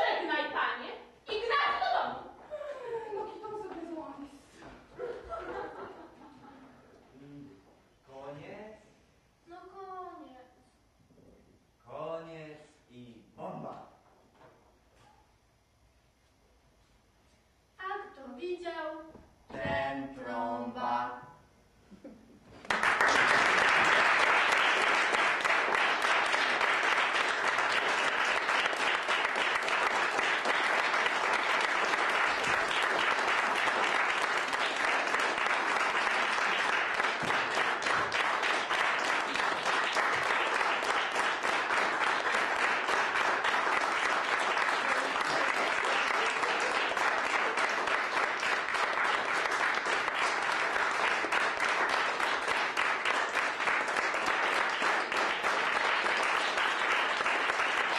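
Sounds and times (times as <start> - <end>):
audience applauding: 22.5 - 57.9.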